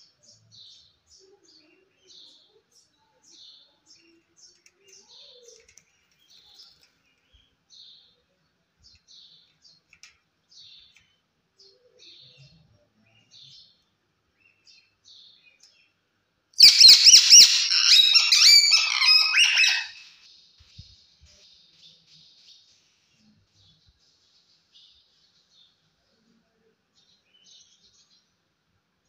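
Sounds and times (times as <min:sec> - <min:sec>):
parakeet shrill screeches: 0:16.6 - 0:20.2
parakeet soft chirps: 0:16.6 - 0:20.2.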